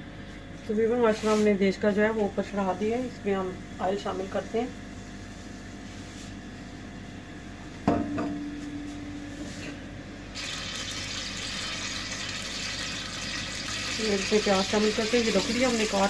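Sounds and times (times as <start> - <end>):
knock on metal pot: 7.8 - 8.5
oil sizzling in hot pot: 10.3 - 16.0.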